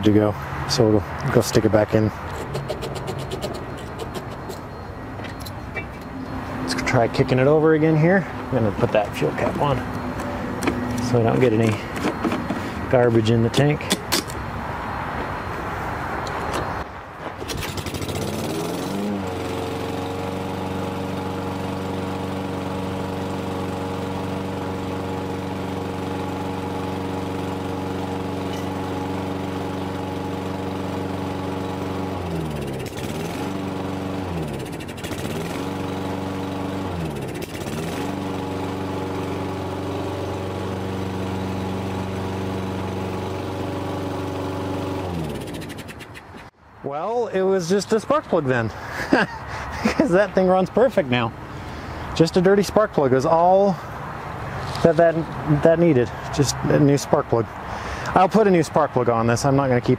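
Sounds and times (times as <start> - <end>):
lawn mower engine running: 1.3 - 14.4, 17.3 - 46.5.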